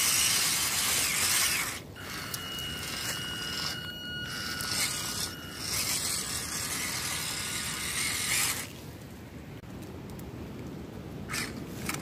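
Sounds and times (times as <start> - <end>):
electric motor whining: 0.0 - 8.7.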